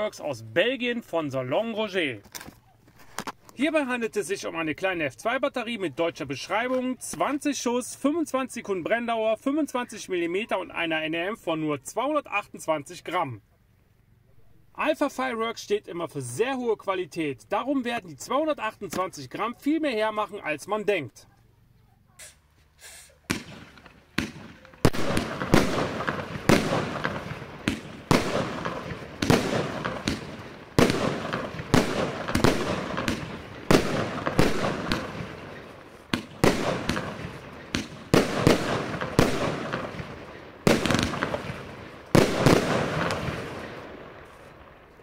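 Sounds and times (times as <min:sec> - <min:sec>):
firework bangs: 0:23.2 - 0:44.9.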